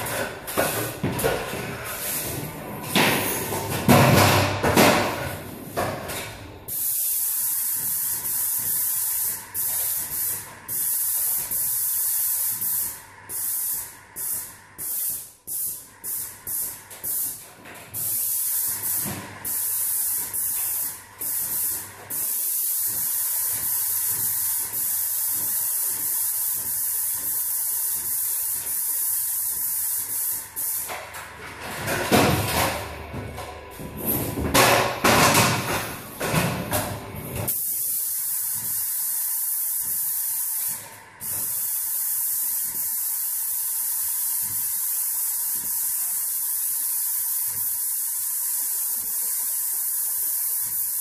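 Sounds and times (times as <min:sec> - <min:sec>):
paint sprayer hissing: 0:00.0 - 0:31.2, 0:33.8 - 0:51.0.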